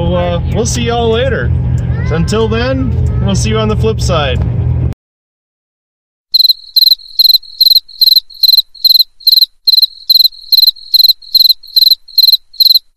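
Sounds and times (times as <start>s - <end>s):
cricket chirping: 6.4s - 12.9s.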